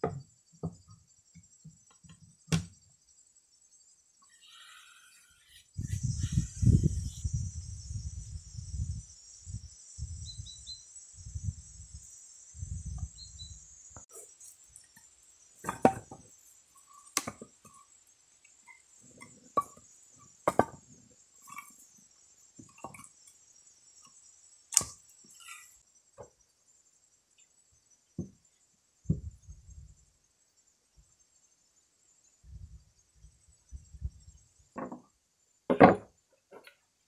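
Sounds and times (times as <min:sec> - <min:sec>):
high insect buzz: 0:00.2 - 0:36.2
wooden logs knocking: 0:15.6 - 0:16.3, 0:17.2 - 0:17.5, 0:20.4 - 0:20.9.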